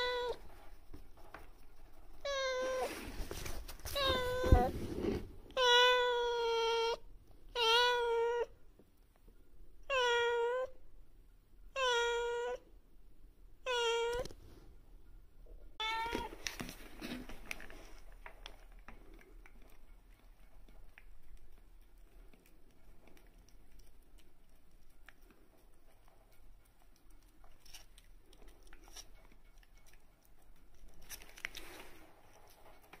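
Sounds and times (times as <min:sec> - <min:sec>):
cat meowing: 0:00.0 - 0:00.4, 0:02.2 - 0:03.0, 0:03.9 - 0:04.8, 0:05.5 - 0:08.6, 0:09.8 - 0:10.8, 0:11.7 - 0:12.6, 0:13.6 - 0:14.3, 0:15.8 - 0:16.3.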